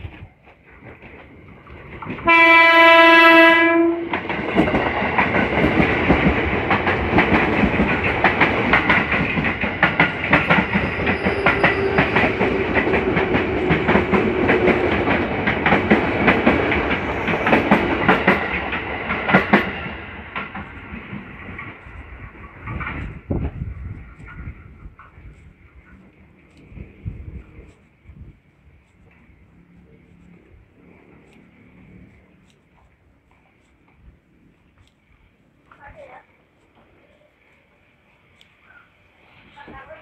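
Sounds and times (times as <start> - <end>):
train wheels clacking over rail joints: 0.0 - 27.8
train horn blast: 2.2 - 4.1.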